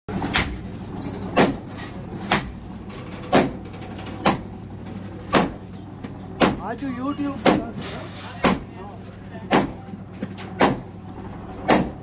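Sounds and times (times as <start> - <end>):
hammer striking metal: 0.2 - 0.6.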